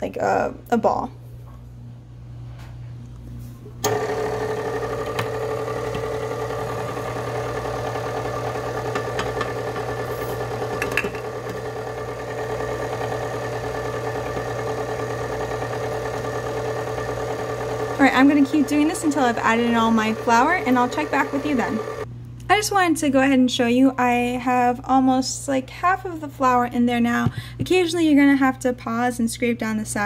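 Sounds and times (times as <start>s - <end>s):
stand mixer running: 3.8s - 22.1s.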